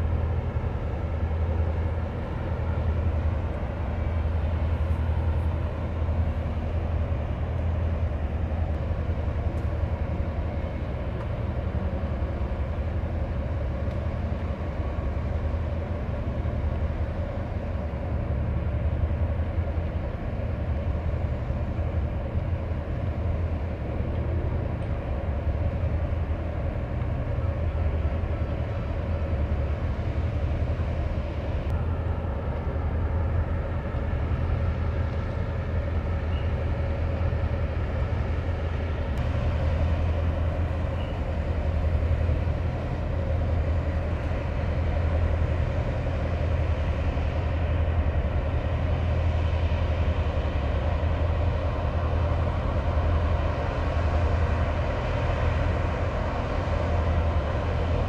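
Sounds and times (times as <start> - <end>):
diesel engines rumbling: 0.0 - 58.0
faint high whine: 23.8 - 58.0.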